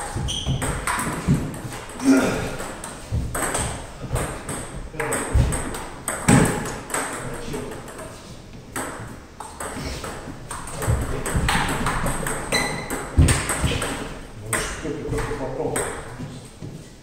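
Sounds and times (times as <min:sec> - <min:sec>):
heavier thuds: 0:13.1 - 0:14.0.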